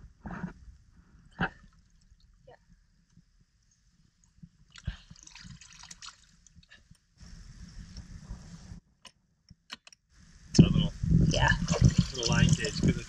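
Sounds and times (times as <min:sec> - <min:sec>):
rush of water: 0:11.3 - 0:13.0.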